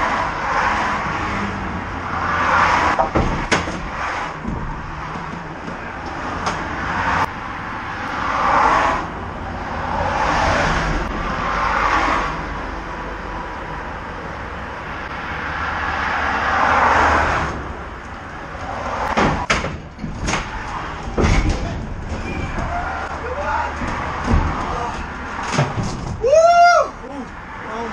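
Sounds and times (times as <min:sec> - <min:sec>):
highway traffic rushing past: 0:00.0 - 0:27.9
car thumping onto ramps: 0:03.0 - 0:06.7, 0:23.8 - 0:26.3.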